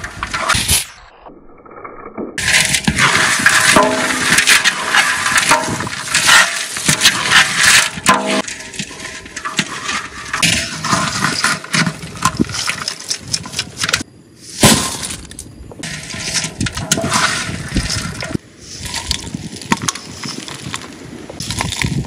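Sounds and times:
metal skimmer scraping a pan: 0:02.4 - 0:14.0, 0:15.8 - 0:19.3.

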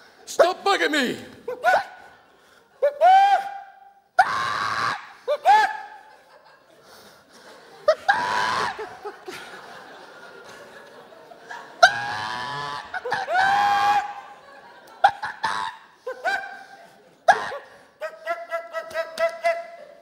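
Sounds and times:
high-pitched laughing and squealing: 0:01.5 - 0:02.2, 0:02.8 - 0:06.3, 0:07.8 - 0:09.5, 0:11.5 - 0:20.0.

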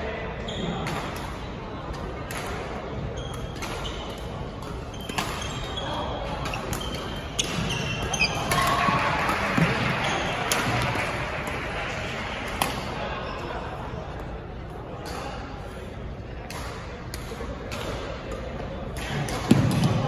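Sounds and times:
crowd chatter: 0:00.0 - 0:20.0
racket hitting shuttlecock: 0:03.4 - 0:05.8, 0:06.4 - 0:11.6, 0:12.5 - 0:13.0, 0:16.5 - 0:20.0
shoe squeaks on court floor: 0:04.9 - 0:08.6.

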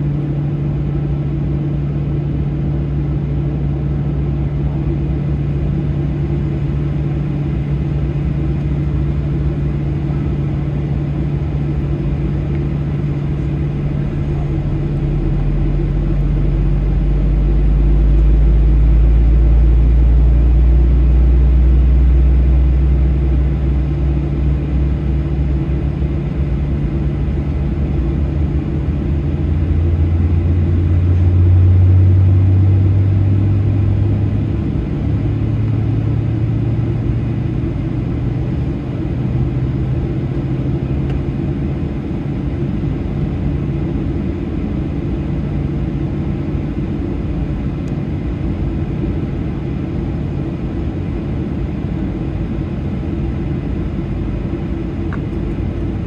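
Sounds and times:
airplane cabin engine rumble: 0:00.0 - 0:56.0.

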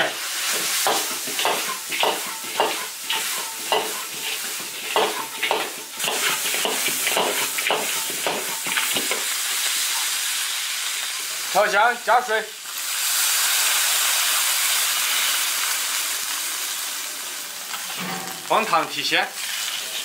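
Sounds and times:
food sizzling in a wok: 0:00.0 - 0:20.0
metal ladle scraping a wok: 0:01.0 - 0:09.0, 0:17.7 - 0:18.5.

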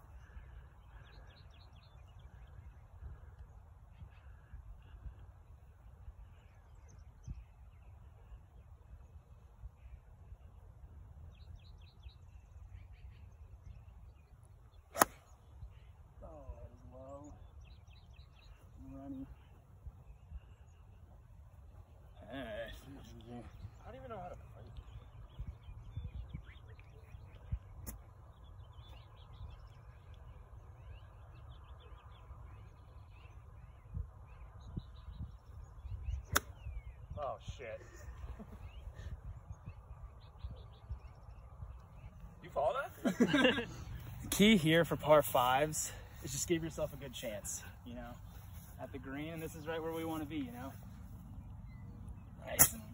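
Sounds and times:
songbirds chirping: 0:00.0 - 0:52.9
golf club striking ball: 0:14.9 - 0:15.3, 0:52.6 - 0:52.9
sharp click: 0:52.5 - 0:52.9.

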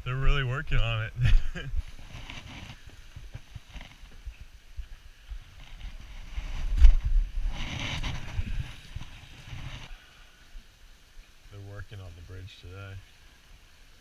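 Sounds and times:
wind buffeting microphone: 0:00.2 - 0:09.9.

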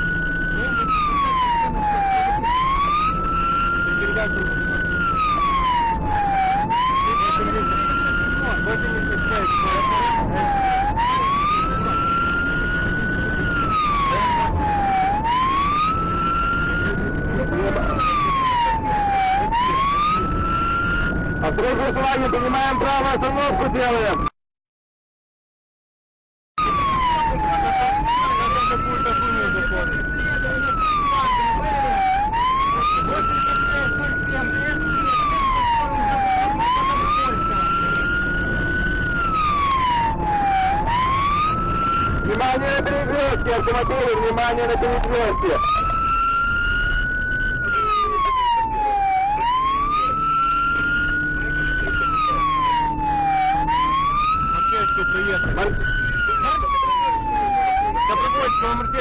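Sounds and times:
siren wailing: 0:00.0 - 0:24.3, 0:26.6 - 0:59.0
low road noise: 0:00.0 - 0:24.4, 0:26.6 - 0:59.0.

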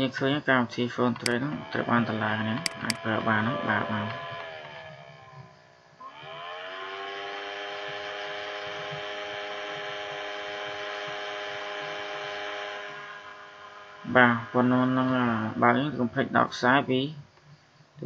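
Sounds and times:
small electric motor whirring: 0:02.6 - 0:03.2, 0:06.1 - 0:14.3.

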